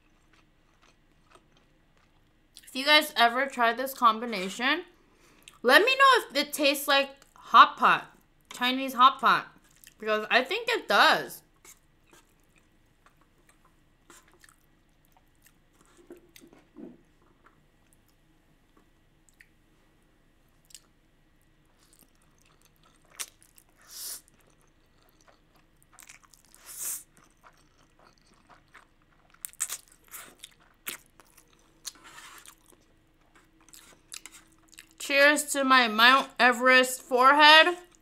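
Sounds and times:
wet chewing: 0.0s - 2.7s, 11.6s - 18.2s, 21.8s - 35.0s.

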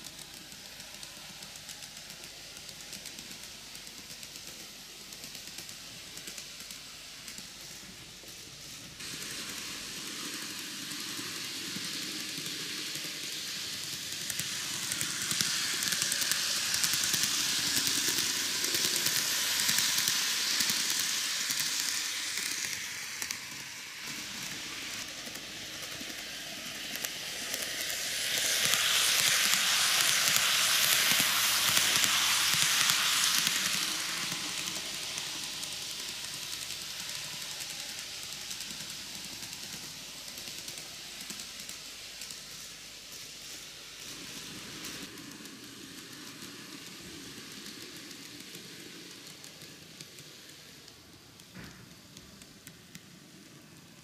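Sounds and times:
model train running on track: 0.0s - 54.0s.

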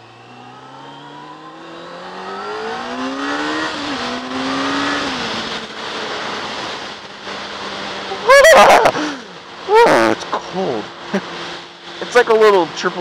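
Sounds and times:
motorcycle engine accelerating: 0.0s - 12.2s.

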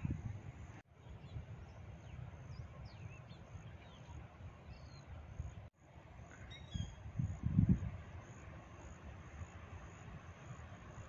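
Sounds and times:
gusty wind on microphone: 0.0s - 2.5s, 6.7s - 8.3s
faint bird chirps: 6.3s - 7.4s.

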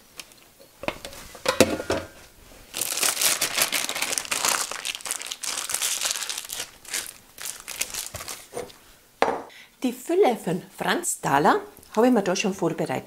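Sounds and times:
plastic piping bag crinkling: 2.7s - 8.6s.

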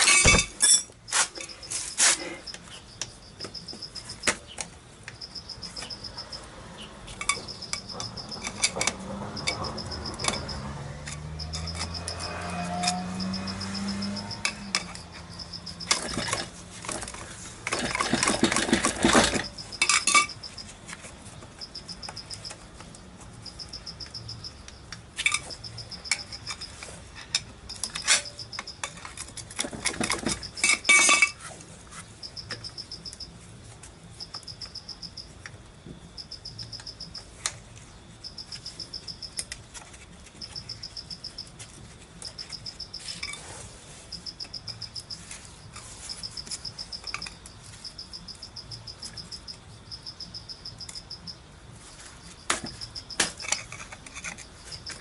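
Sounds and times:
metal tools clinking and scraping: 0.0s - 2.8s, 7.1s - 22.6s, 23.2s - 33.1s, 38.3s - 49.3s, 51.8s - 55.0s
insect chirping trills: 0.0s - 31.4s, 32.1s - 55.0s.

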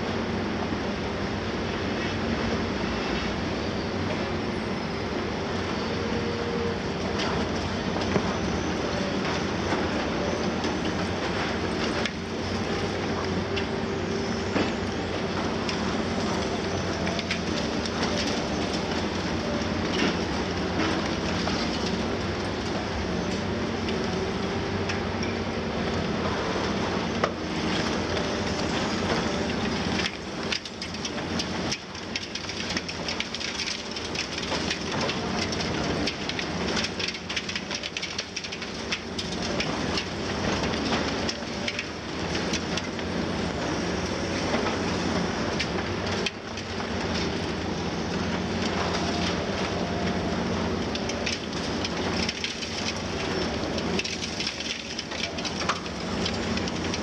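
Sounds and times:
excavators running: 0.0s - 57.0s
concrete crunching and falling: 44.4s - 57.0s.

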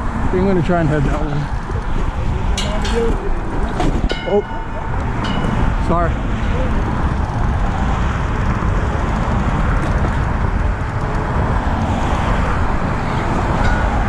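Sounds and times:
road traffic noise: 0.0s - 14.0s
wind on microphone: 0.0s - 14.0s.

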